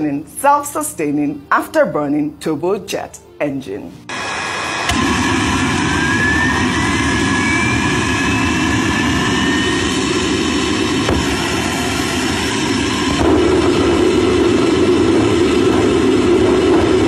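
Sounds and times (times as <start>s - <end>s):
engine whine rising in pitch: 4.1s - 17.0s
turbojet engine roar: 4.1s - 17.0s.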